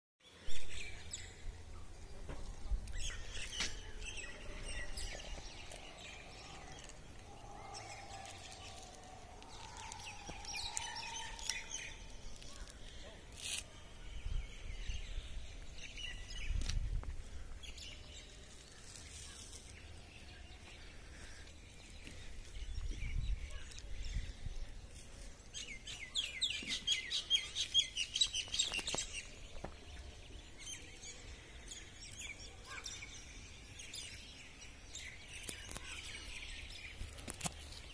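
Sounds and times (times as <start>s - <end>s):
small birds chirping: 0.2s - 37.9s.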